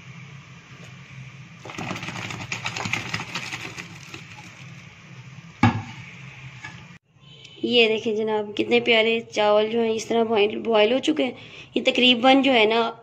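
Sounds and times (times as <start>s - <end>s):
water bubbling at a rolling boil: 1.6s - 5.0s.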